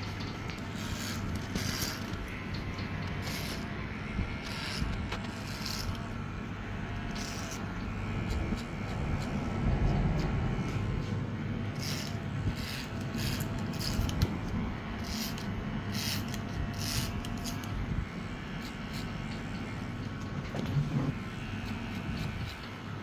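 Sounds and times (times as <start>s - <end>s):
clipper blade cutting hair: 0.0s - 6.2s, 6.9s - 10.8s, 11.6s - 20.2s, 21.2s - 23.0s
electric hair clipper buzzing: 0.0s - 20.4s, 21.1s - 23.0s.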